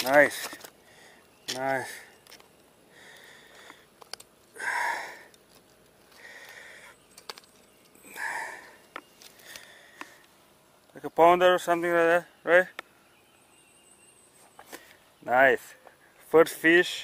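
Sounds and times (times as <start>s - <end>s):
person breathing hard: 2.9s - 5.4s, 6.1s - 7.0s, 8.0s - 10.3s.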